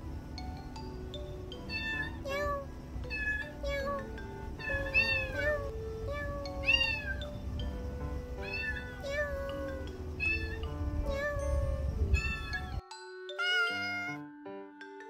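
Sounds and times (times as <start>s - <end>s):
soft background music: 0.0s - 15.0s
kitten meowing: 1.6s - 7.3s, 8.4s - 12.8s, 13.4s - 14.2s.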